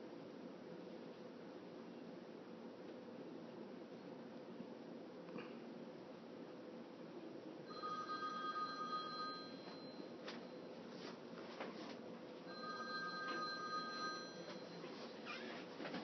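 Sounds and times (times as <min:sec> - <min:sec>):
telephone ringing: 0:07.7 - 0:10.7, 0:12.5 - 0:15.0.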